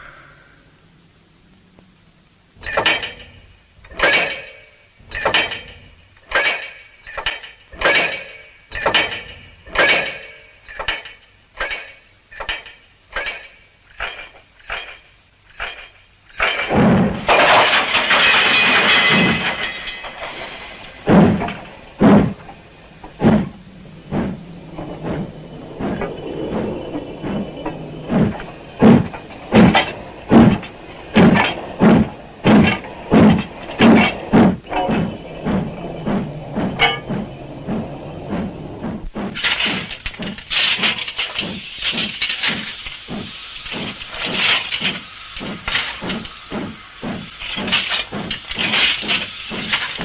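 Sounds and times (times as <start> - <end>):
loud steam hiss: 0.0 - 4.1, 16.2 - 50.0
steam locomotive chuffing: 2.6 - 50.0.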